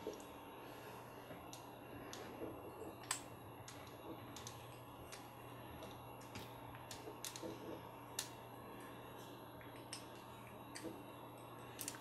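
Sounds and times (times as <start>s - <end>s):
faint steady hum: 0.0s - 12.0s
small plastic and metal parts clicking: 3.0s - 7.6s, 11.7s - 12.0s.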